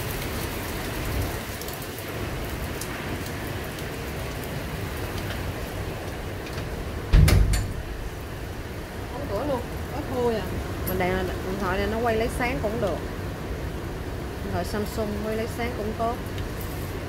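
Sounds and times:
steady rain: 0.0 - 17.0
loud short knock: 7.1 - 7.9.

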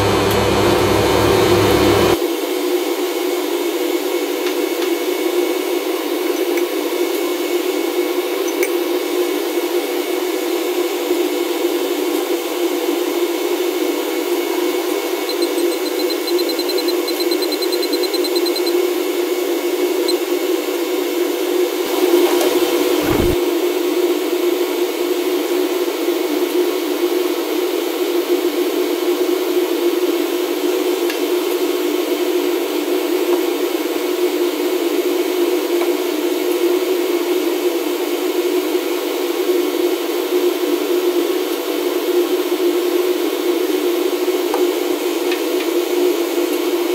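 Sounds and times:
extraction fan humming: 0.0 - 2.2, 21.7 - 23.4.

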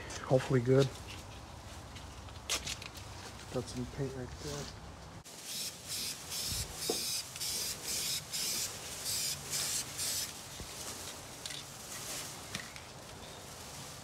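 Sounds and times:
spray can spraying bursts: 5.3 - 10.4.

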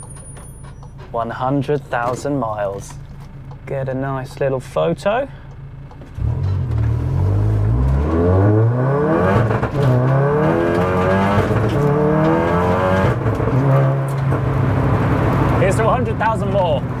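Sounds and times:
car engine accelerating hard: 5.9 - 17.0.

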